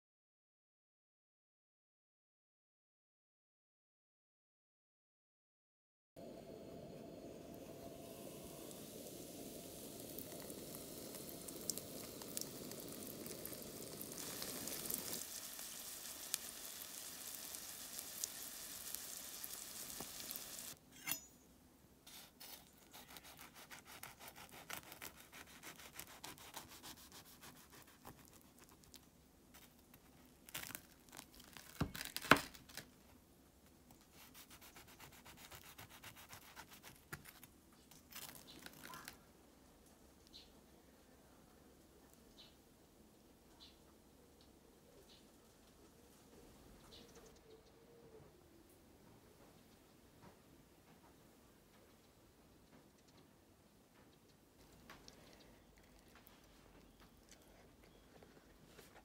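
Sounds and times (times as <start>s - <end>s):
dough sizzling in a frying pan: 7.4s - 20.8s
knife cutting crisp crust: 22.1s - 29.0s, 34.2s - 37.5s.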